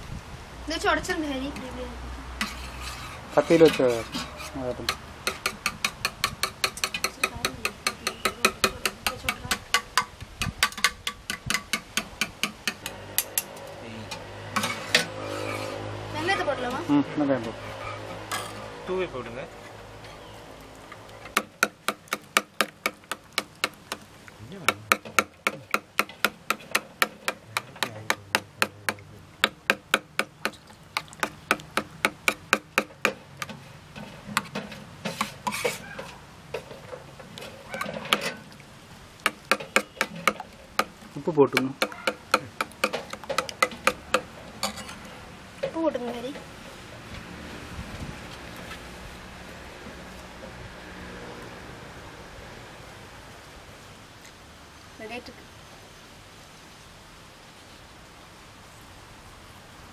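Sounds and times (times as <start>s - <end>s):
short rustling scrape: 2.4s - 4.6s, 14.6s - 15.9s.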